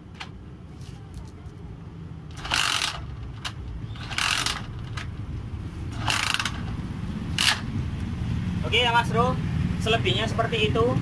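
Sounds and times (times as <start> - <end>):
motorcycle kick-starter ratcheting: 2.3 - 7.8.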